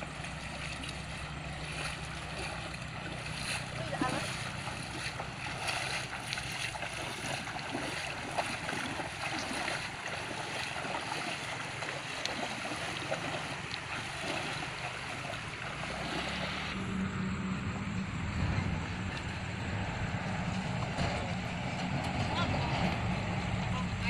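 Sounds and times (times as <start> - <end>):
feet splashing in muddy water: 0.0 - 17.2.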